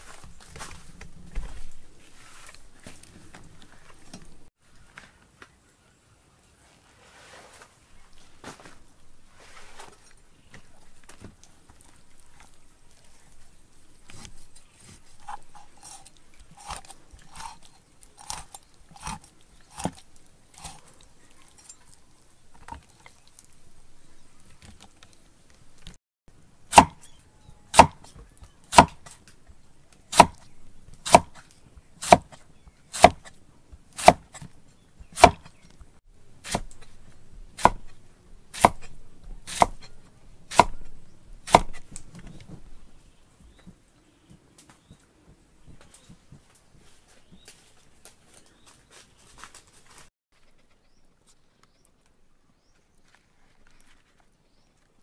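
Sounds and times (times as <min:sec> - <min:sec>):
cleaver chopping on wooden board: 0:18.2 - 0:20.0, 0:26.7 - 0:27.1, 0:27.7 - 0:29.2, 0:30.1 - 0:31.4, 0:32.0 - 0:33.3, 0:34.0 - 0:35.6, 0:36.4 - 0:36.9, 0:37.6 - 0:38.0, 0:38.6 - 0:41.9.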